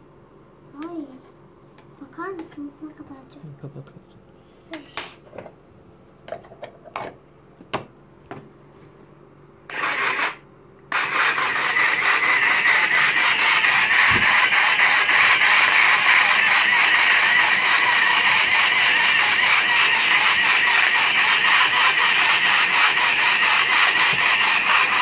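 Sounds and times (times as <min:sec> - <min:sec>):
small motor whirring: 0:09.7 - 0:25.0.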